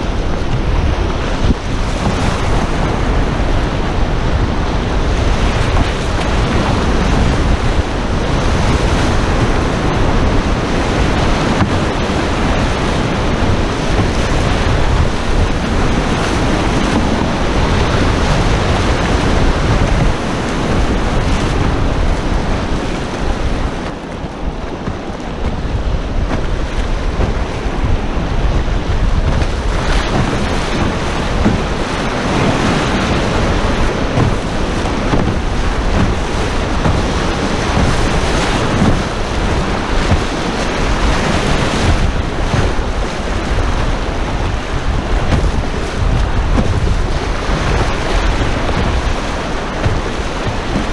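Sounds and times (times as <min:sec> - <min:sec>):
river rapids rushing: 0:00.0 - 0:50.9
wind noise on microphone: 0:00.0 - 0:50.9.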